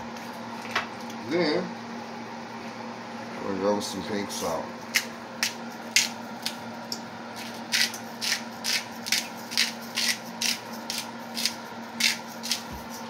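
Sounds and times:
salt grinder grinding: 7.4s - 13.0s.

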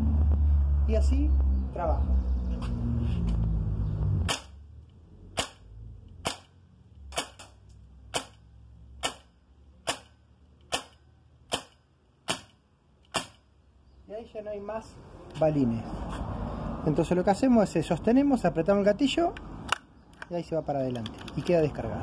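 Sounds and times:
air rifle shots cracking: 5.4s - 8.4s, 9.0s - 13.5s.

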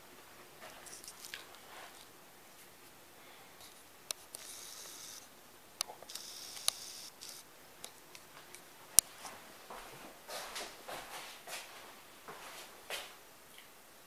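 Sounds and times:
sharp clicks: 5.8s - 9.1s.

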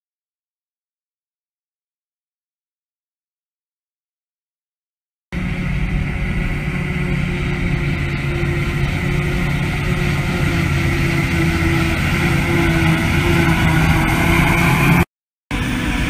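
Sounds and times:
heavy machinery engine drone: 5.4s - 16.0s.

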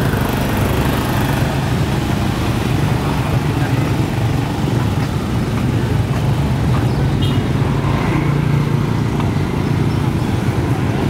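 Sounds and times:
motor scooter engines droning: 0.0s - 11.0s.

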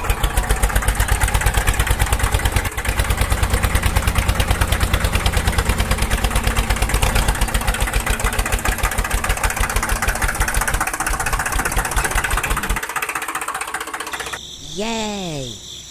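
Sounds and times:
tractor engine pulsing: 0.0s - 14.4s.

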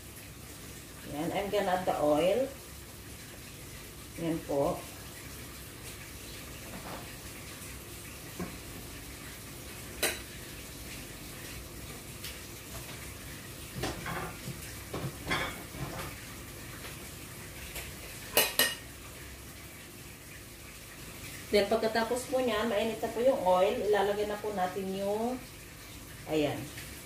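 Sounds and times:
oil hissing in a pot: 0.0s - 27.0s
oil crackling and popping: 5.0s - 19.3s.

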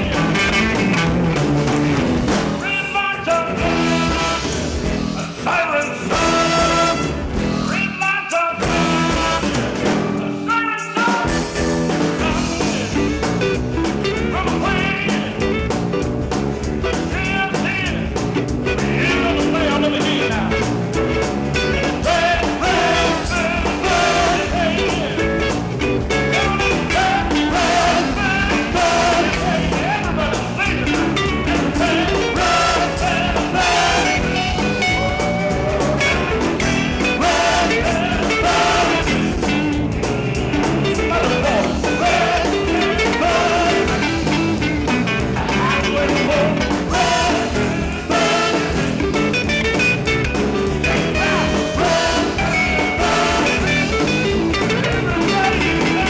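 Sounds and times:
bass: 0.0s - 56.0s
drums: 0.0s - 56.0s
guitars: 0.0s - 56.0s
trumpet: 2.6s - 4.8s, 5.6s - 11.3s, 32.2s - 36.0s, 48.1s - 49.0s, 51.1s - 54.1s
trombone: 3.6s - 5.0s, 5.6s - 7.9s, 8.6s - 10.3s, 21.6s - 25.1s, 26.4s - 29.6s, 30.9s - 39.3s, 45.4s - 49.6s, 50.8s - 56.0s
saxophone: 6.1s - 7.3s, 8.6s - 9.9s.

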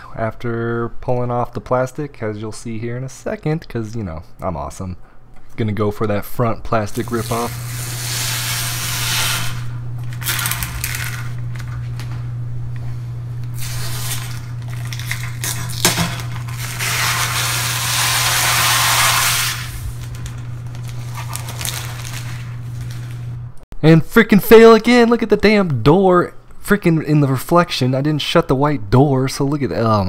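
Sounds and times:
steady low hum: 0.0s - 29.1s
plastic film peeling off glass: 9.0s - 12.1s, 13.6s - 23.3s.

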